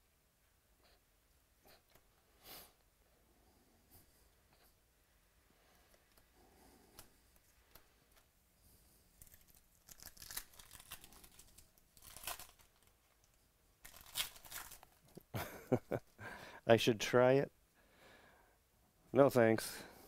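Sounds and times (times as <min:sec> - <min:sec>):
foil wrapper tearing and crinkling: 0:09.2 - 0:15.1.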